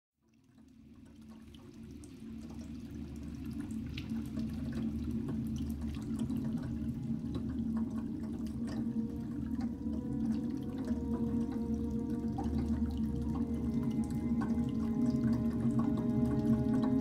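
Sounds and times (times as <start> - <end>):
water trickling and dripping: 0.2 - 17.0
steady low drone: 5.2 - 17.0.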